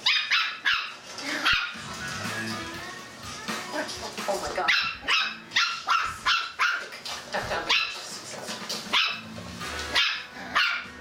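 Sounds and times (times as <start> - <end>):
puppy yapping: 0.0 - 1.8, 4.7 - 6.9, 8.9 - 9.3, 9.9 - 11.0.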